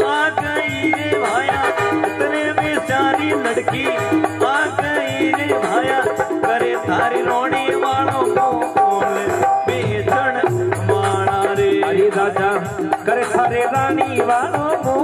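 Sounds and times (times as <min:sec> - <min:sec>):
drum and rattle percussion: 0:00.0 - 0:15.0
wavering devotional melody: 0:00.0 - 0:15.0.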